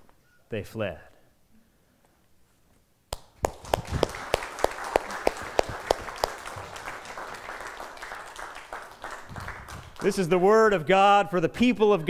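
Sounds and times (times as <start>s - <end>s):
loud even hand claps: 3.1s - 10.5s
congregation applauding: 3.2s - 10.6s.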